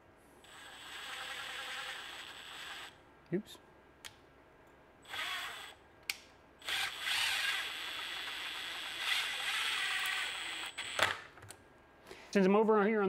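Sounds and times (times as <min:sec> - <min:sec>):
cordless drill driving screw: 0:00.5 - 0:03.0, 0:05.1 - 0:05.8, 0:06.6 - 0:11.2.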